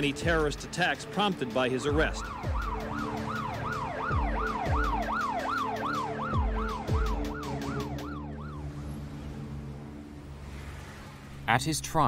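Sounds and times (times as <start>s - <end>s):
police siren yelping: 1.9s - 8.8s
deep falling siren sweeps: 2.0s - 11.3s.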